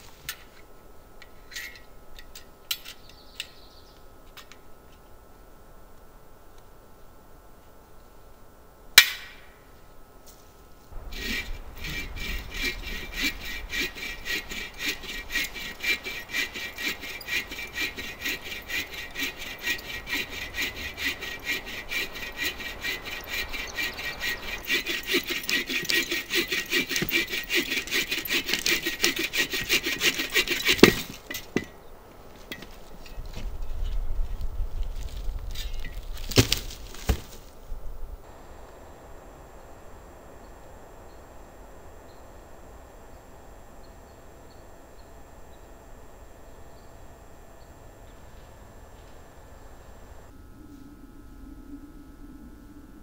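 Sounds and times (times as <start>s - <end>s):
bow saw cutting log: 11.0s - 31.7s
wood cracking: 35.4s - 37.4s.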